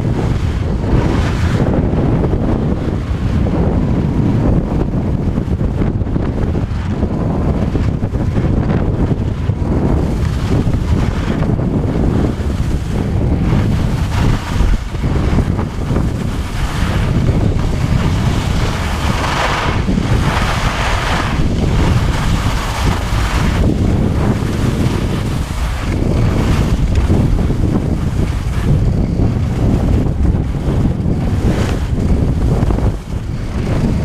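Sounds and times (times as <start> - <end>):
skis scraping on snow: 0.0 - 34.0
wind buffeting microphone: 0.0 - 34.0.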